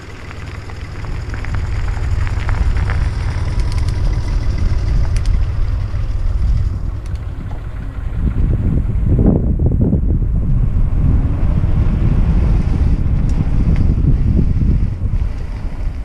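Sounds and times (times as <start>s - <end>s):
bike clicks and rattles: 0.0s - 7.7s
wind buffeting microphone: 0.0s - 16.0s.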